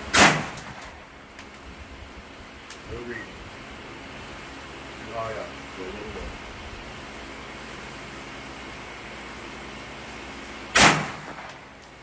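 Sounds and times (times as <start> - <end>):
handgun shot: 0.1 - 0.9, 10.8 - 11.6.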